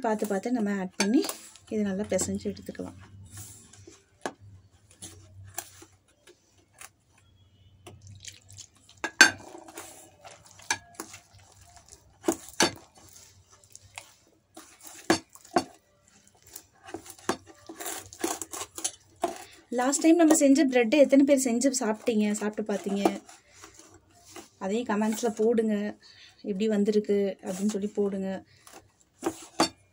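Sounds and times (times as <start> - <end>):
hand kneading wet dough: 0.1 - 9.0, 9.6 - 18.7
metal bowl clinking and knocking: 9.0 - 11.2.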